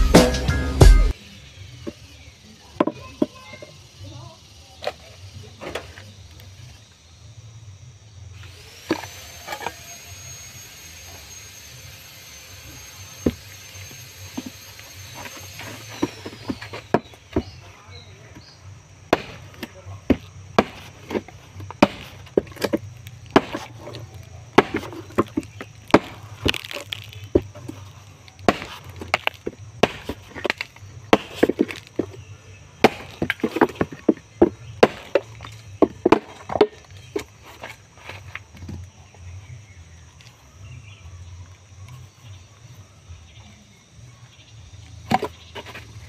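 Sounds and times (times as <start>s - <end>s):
blade chopping bamboo: 8.5s - 17.6s, 19.1s - 38.6s.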